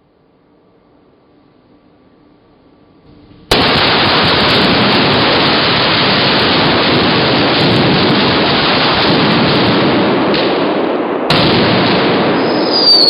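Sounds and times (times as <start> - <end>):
fire burning with loud rush: 3.1 - 13.0
explosive blast: 3.2 - 13.0.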